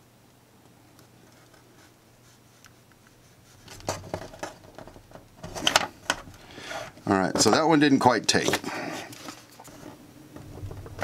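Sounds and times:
faint low hum: 8.6 - 11.0.

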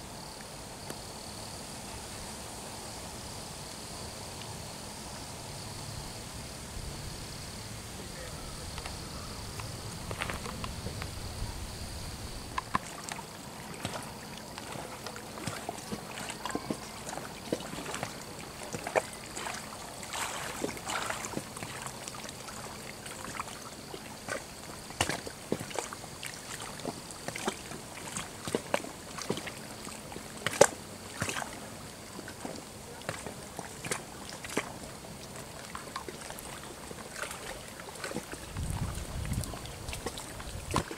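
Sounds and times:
steady hiss: 0.0 - 27.3
small waves lapping: 4.4 - 40.9.

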